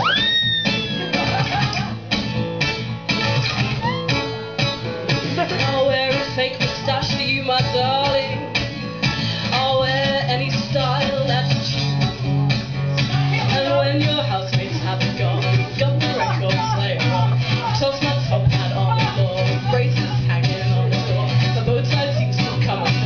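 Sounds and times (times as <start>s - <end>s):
acoustic guitar strumming: 0.0s - 23.0s
woman singing: 5.4s - 8.8s, 9.4s - 11.9s, 13.1s - 23.0s.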